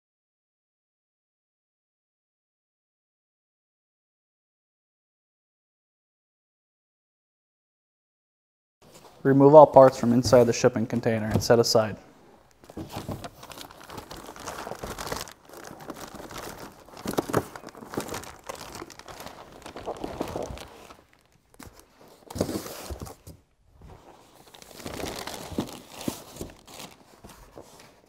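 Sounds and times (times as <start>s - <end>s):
plastic wrap and cardboard rustling: 8.9s - 28.0s.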